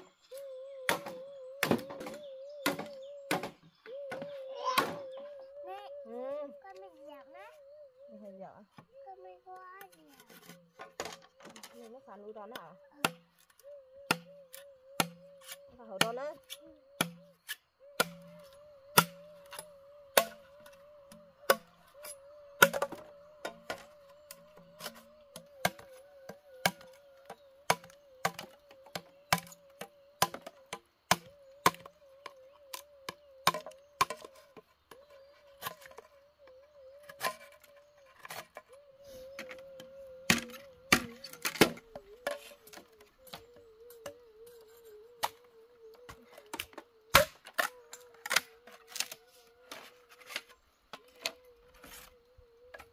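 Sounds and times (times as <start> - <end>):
machete chopping bamboo: 0.9 - 5.1, 13.0 - 13.3, 14.1 - 25.9, 26.6 - 31.9, 32.7 - 34.4, 40.3 - 42.8, 46.5 - 49.2.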